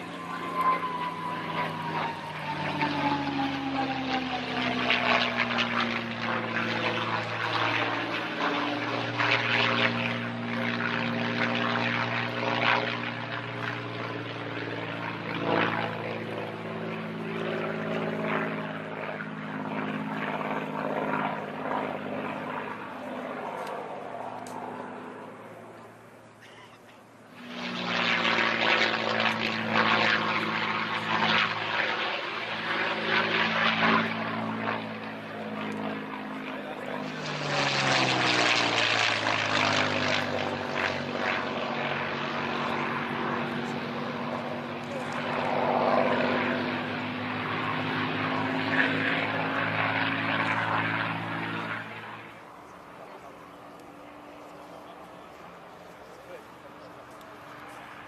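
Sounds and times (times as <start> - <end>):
propeller plane engine overhead: 0.0 - 58.0.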